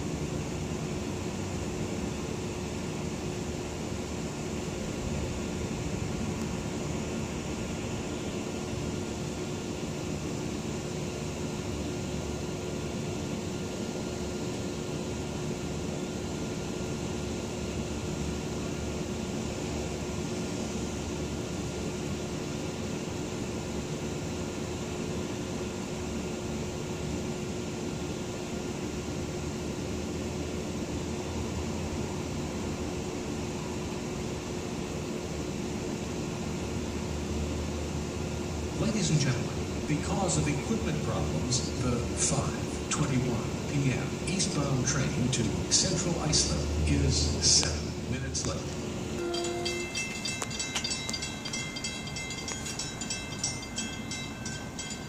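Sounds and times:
low ambient hum: 0:38.4 - 0:55.0
faint high tone: 0:49.2 - 0:51.2.

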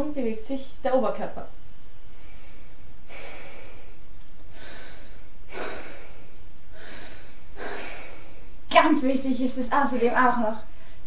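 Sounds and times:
low steady hum: 0:00.0 - 0:11.0
person breathing: 0:02.0 - 0:08.6, 0:09.9 - 0:11.0.

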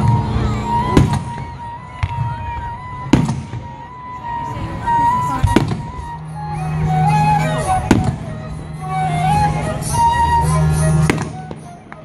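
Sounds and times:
firework shells booming: 0:03.1 - 0:03.8.

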